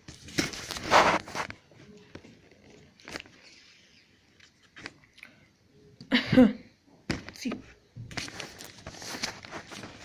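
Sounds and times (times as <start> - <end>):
hand rustling scrape: 0.5 - 1.5.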